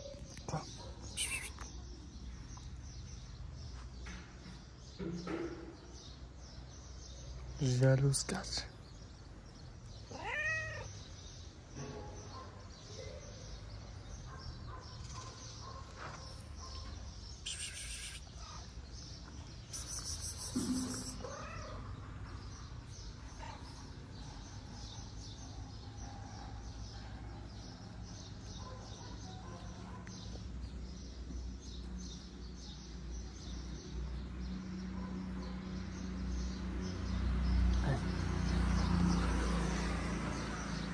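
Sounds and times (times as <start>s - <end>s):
faint street background: 0.0s - 40.9s
cat meowing: 10.1s - 11.1s, 20.5s - 21.9s.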